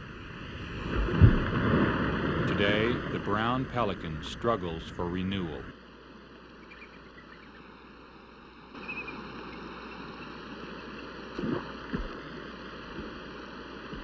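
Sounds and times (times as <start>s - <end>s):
water rushing: 0.0s - 5.7s
dull thumps: 11.4s - 12.2s.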